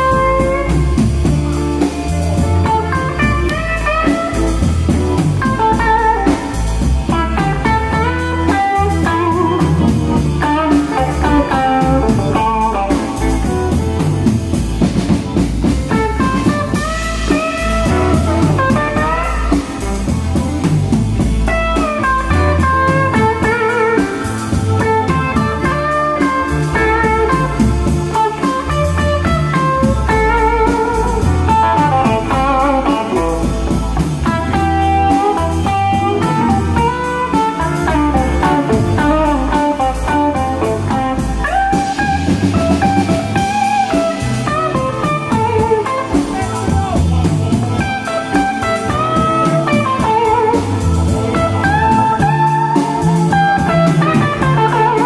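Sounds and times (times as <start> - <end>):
bass: 0.0 - 55.0
drums: 0.0 - 55.0
electric guitar lead lines: 0.0 - 55.0.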